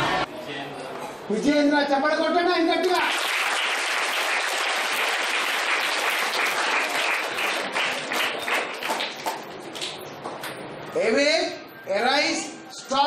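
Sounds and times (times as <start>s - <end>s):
children applauding: 3.0s - 10.0s.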